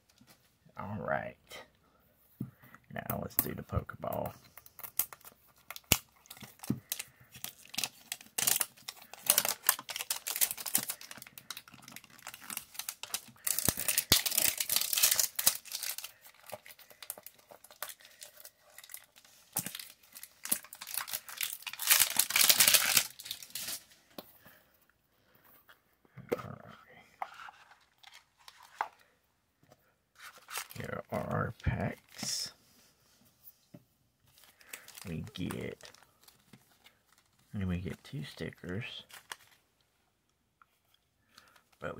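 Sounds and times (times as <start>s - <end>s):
plastic wrap crinkling: 4.7s - 23.9s, 34.3s - 39.6s.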